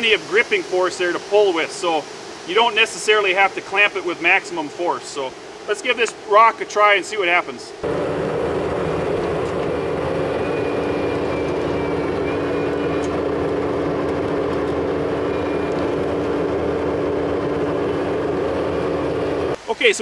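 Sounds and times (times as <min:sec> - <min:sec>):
diesel engine running: 0:07.8 - 0:19.6.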